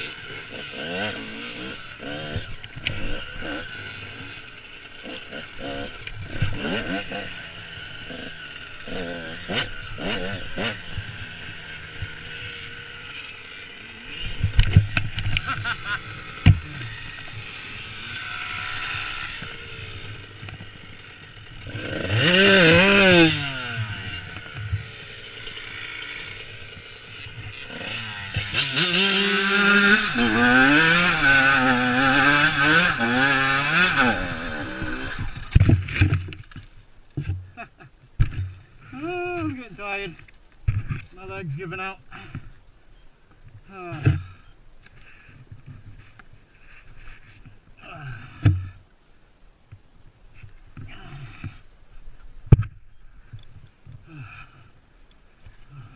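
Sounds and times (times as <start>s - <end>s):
dirt bike engine revving: 0.0s - 36.6s.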